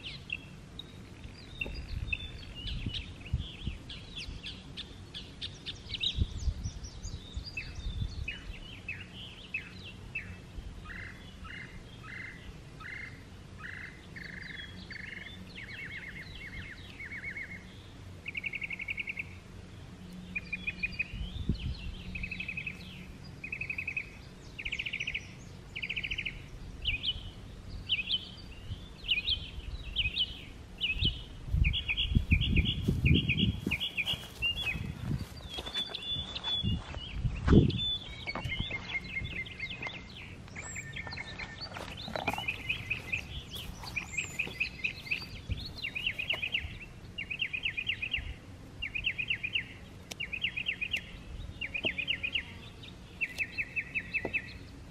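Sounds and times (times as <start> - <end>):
songbirds trilling: 0.0 - 54.9
footsteps thudding and rustling: 32.8 - 40.0, 41.4 - 46.4.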